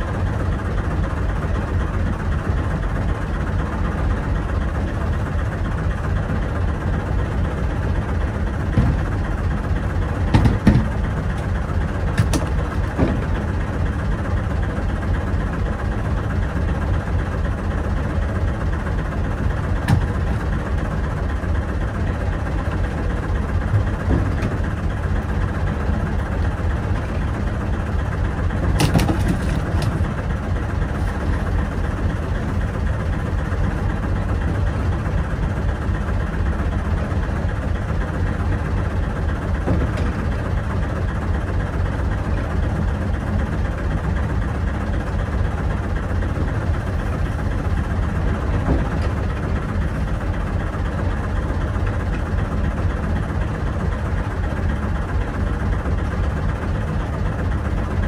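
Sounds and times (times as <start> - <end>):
boat engine rumbling: 0.0 - 58.0
short knocks: 10.3 - 11.0.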